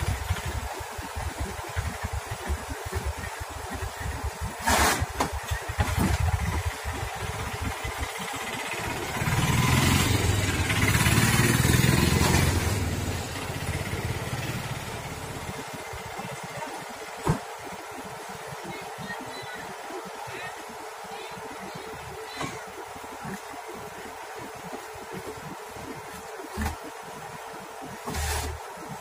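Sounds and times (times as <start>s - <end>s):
diesel engine running: 0.0s - 17.7s.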